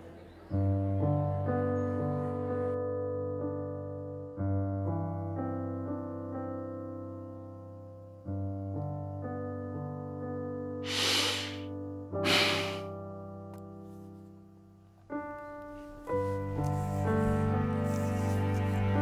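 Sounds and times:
soft piano music: 0:00.0 - 0:19.0
woman breathing deeply: 0:10.8 - 0:12.9.

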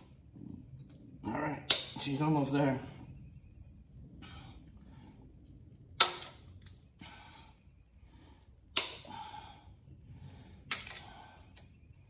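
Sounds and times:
locking pliers snapping on metal: 0:01.7 - 0:02.0.

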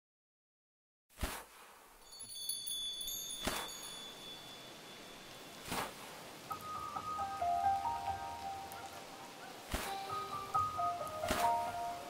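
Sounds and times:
high sparkling chime tones: 0:02.0 - 0:05.7
lower chime notes: 0:02.1 - 0:05.6.

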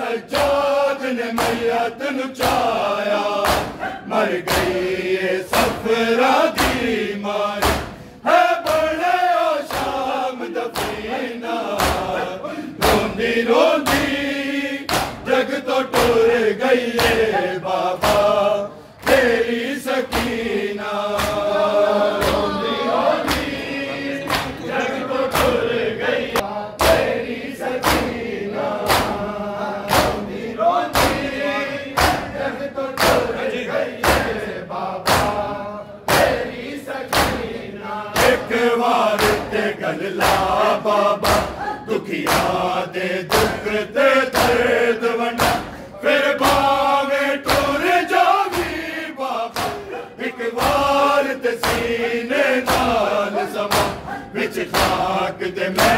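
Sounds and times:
men chanting in unison: 0:00.0 - 0:55.9
hands slapping chests: 0:01.4 - 0:01.8, 0:02.4 - 0:22.4, 0:23.2 - 0:23.6, 0:24.3 - 0:24.6, 0:25.3 - 0:25.6, 0:26.4 - 0:31.4, 0:32.0 - 0:33.4, 0:34.0 - 0:34.4, 0:35.0 - 0:35.5, 0:36.1 - 0:36.5, 0:37.1 - 0:37.5, 0:38.2 - 0:42.7, 0:43.3 - 0:45.8, 0:46.4 - 0:46.8, 0:47.4 - 0:48.8, 0:49.5 - 0:55.2.

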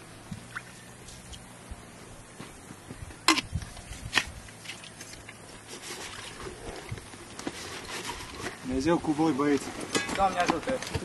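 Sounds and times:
gear and clothing rustling: 0:03.7 - 0:11.0.

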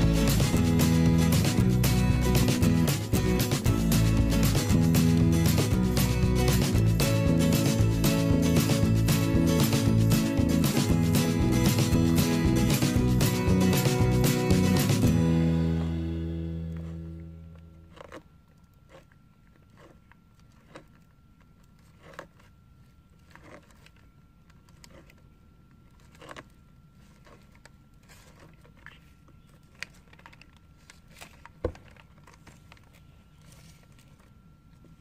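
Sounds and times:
faint high hum: 0:00.0 - 0:35.0
tortoises crunching carrots: 0:16.4 - 0:35.0.

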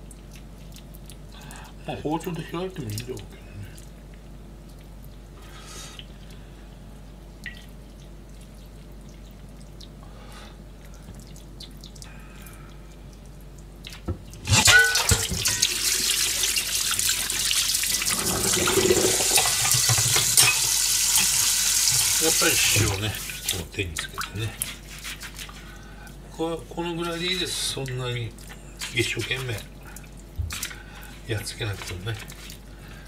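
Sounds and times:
water running into steel sink: 0:14.5 - 0:24.6
kitchen tap turned on: 0:17.9 - 0:23.0.

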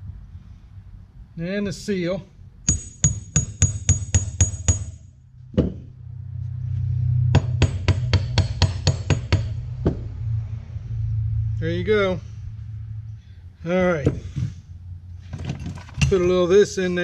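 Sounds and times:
hammer tapping on metal: 0:02.7 - 0:05.0, 0:07.4 - 0:10.0.

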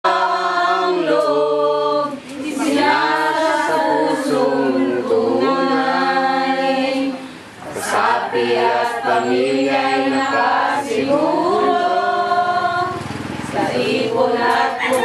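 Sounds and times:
women singing without instruments: 0:00.1 - 0:15.0.

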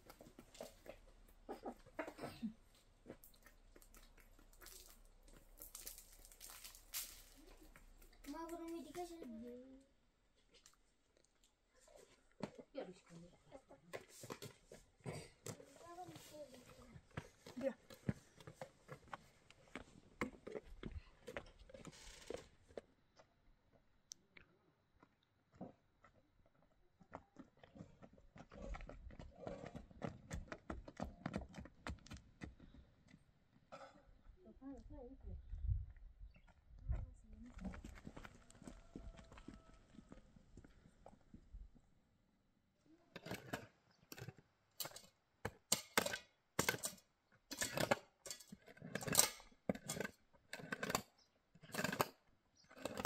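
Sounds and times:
footsteps on stony dirt path: 0:02.9 - 0:09.4, 0:14.1 - 0:22.4, 0:25.5 - 0:33.3, 0:36.3 - 0:41.5
metal clinking against gravel: 0:03.9 - 0:07.8, 0:44.2 - 0:51.1
shovel scraping stony dirt: 0:43.2 - 0:53.0.

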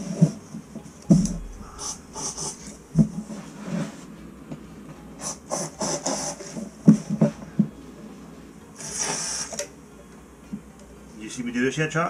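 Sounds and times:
compressed air hissing bursts: 0:01.5 - 0:02.8, 0:08.8 - 0:09.6.

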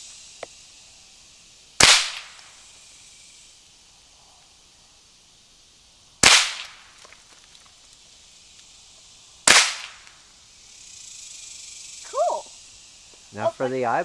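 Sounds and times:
rifle shots: 0:01.8 - 0:02.3, 0:06.2 - 0:06.7, 0:09.5 - 0:10.0.

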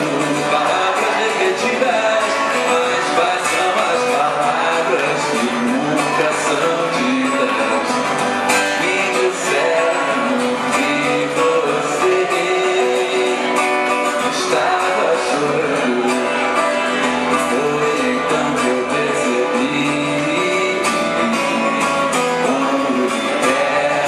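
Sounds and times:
guitar strumming: 0:00.0 - 0:24.0
man singing into a microphone: 0:00.0 - 0:24.0.

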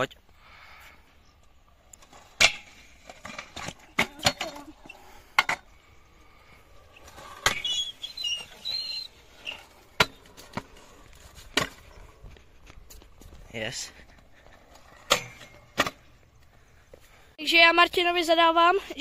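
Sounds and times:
scooter wheels and deck clacking: 0:01.4 - 0:16.5
scooter grinding along ledge: 0:01.4 - 0:17.0.

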